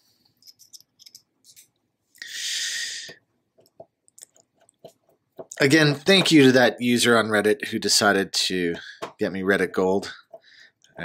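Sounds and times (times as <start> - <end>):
short breath: 2.2 - 3.2, 10.4 - 10.8.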